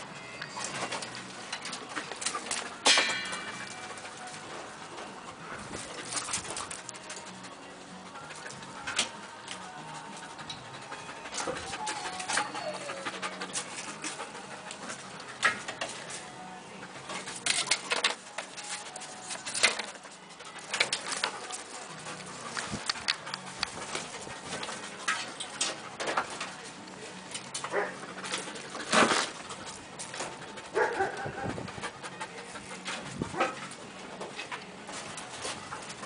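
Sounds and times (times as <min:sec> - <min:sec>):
boards and metal clattering: 0:00.4 - 0:07.2, 0:17.0 - 0:31.7
dog panting: 0:00.6 - 0:36.0.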